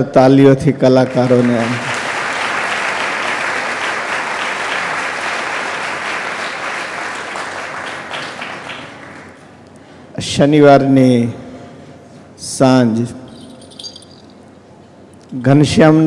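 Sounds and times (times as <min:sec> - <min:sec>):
audience applauding: 0:01.0 - 0:09.4.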